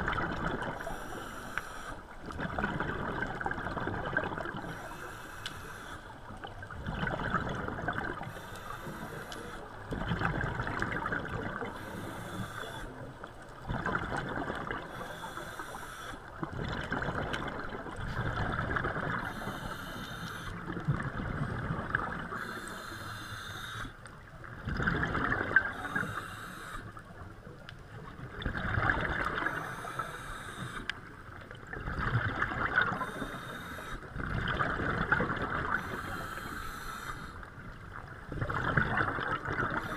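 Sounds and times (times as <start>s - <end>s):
exhaled bubbles gurgling: 0.0s - 39.9s
regulator inhale hiss: 0.8s - 2.2s, 4.6s - 6.2s, 8.2s - 9.7s, 11.7s - 13.0s, 14.9s - 16.4s, 19.2s - 20.6s, 22.2s - 24.0s, 25.6s - 27.0s, 29.4s - 31.0s, 33.0s - 34.1s, 35.7s - 37.5s.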